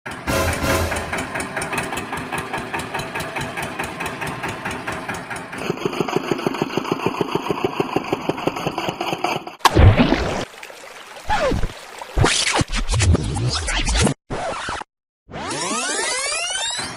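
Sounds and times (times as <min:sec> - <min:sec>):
tractor engine chugging: 0:00.1 - 0:09.6
toy splashing into water: 0:09.6 - 0:12.7.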